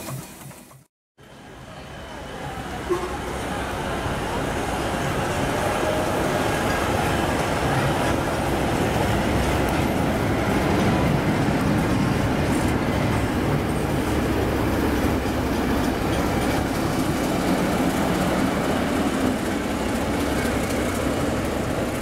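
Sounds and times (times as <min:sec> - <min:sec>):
locomotives rumbling past: 0:02.0 - 0:22.0.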